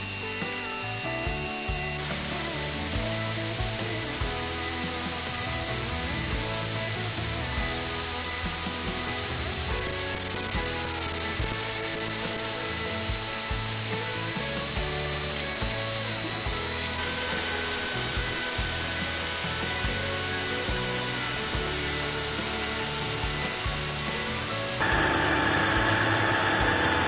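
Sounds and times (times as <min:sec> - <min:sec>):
background music with beat: 0:00.0 - 0:24.8
cordless drill whining: 0:00.0 - 0:27.0.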